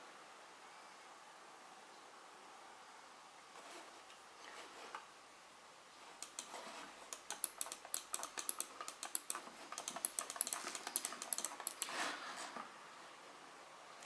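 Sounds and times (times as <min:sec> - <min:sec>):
rapid sharp clicks: 0:06.2 - 0:12.0.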